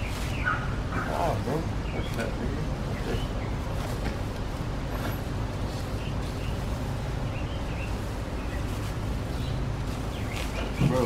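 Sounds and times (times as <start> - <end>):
plastic sheeting rustling: 0.0 - 1.3, 3.6 - 11.0
birds chirping faintly: 0.0 - 11.0.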